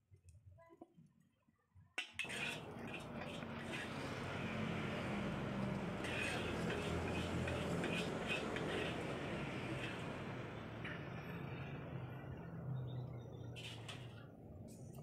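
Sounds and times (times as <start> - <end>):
steady rushing noise: 2.2 - 12.5
metal spatula scraping a wok: 2.2 - 14.8.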